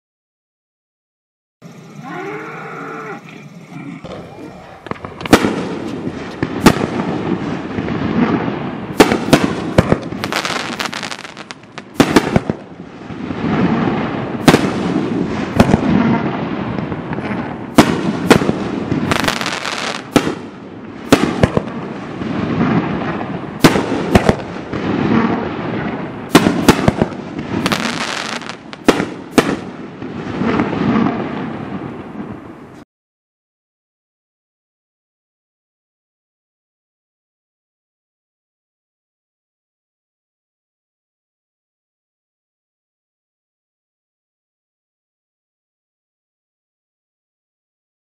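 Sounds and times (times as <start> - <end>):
continuous firework rumble: 3.5 - 32.8
firework bangs: 4.6 - 32.7.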